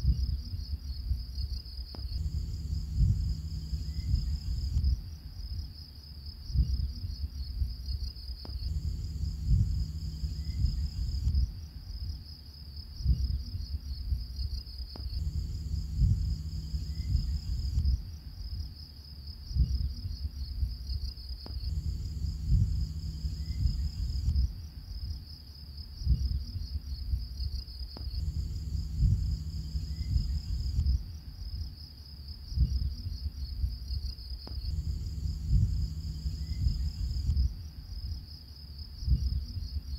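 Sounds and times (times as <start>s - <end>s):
insects chirping: 0.0s - 39.9s
low rumble: 1.9s - 5.6s, 8.4s - 12.2s, 15.0s - 18.6s, 21.4s - 25.2s, 28.0s - 31.6s, 34.4s - 38.2s.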